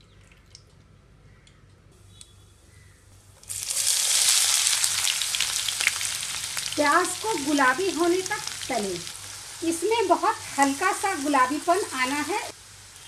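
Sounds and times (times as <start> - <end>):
onions sizzling in hot oil: 3.4 - 13.0.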